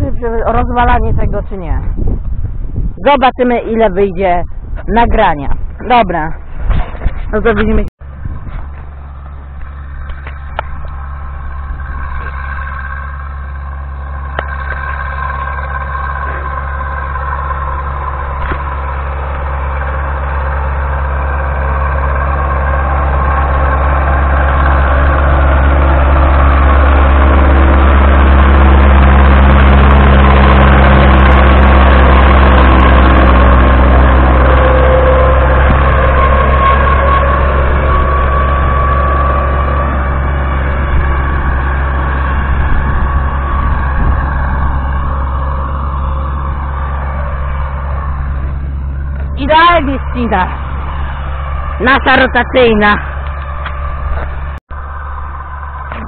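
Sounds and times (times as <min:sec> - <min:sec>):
rising whine: 0:00.0 - 0:56.0
tractor diesel engine under load: 0:05.7 - 0:56.0
rotary mower cutting grass: 0:08.0 - 0:56.0.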